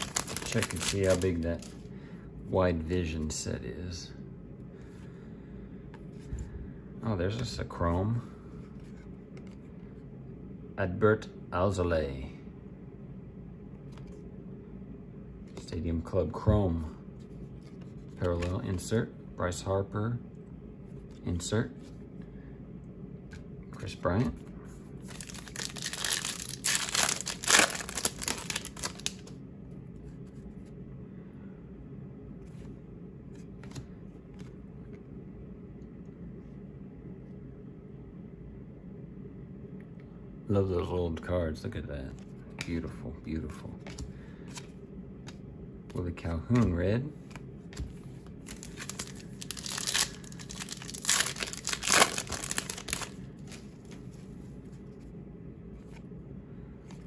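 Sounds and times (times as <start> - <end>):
foil wrapper crinkling and tearing: 0.0 - 1.7, 25.1 - 29.3, 48.5 - 54.0
steady low hum: 0.0 - 57.0.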